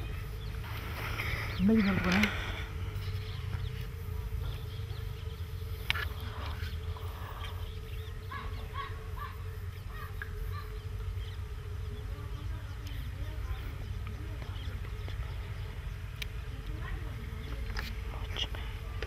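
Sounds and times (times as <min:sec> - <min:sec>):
small birds chirping: 0:00.0 - 0:19.0
steady buzzing hum: 0:00.0 - 0:19.0.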